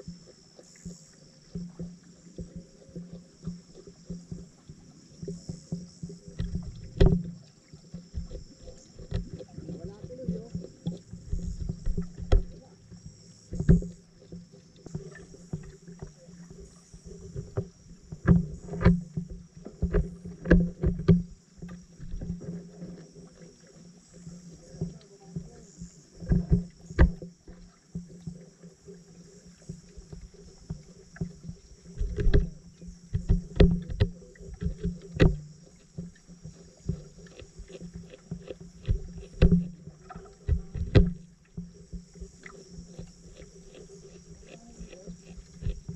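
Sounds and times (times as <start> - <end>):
steady low hum: 0.0 - 45.9
underwater sharp clicks and knocks: 0.0 - 45.9.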